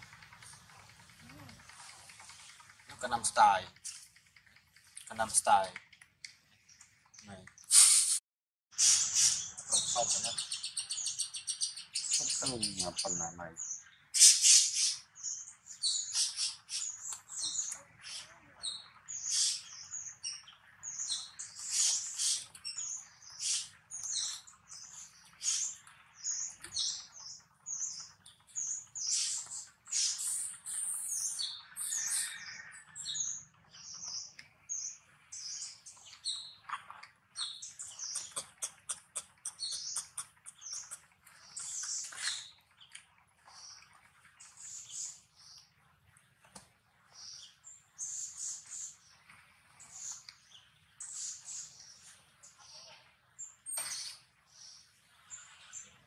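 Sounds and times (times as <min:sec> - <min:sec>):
infant monkey squeaking: 0:38.2 - 0:41.0.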